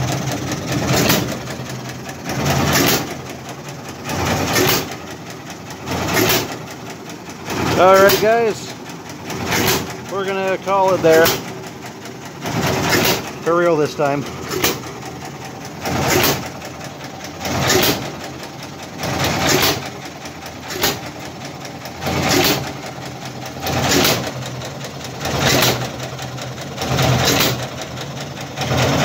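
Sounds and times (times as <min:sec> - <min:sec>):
stationary gas engine firing: 0:00.0 - 0:29.0.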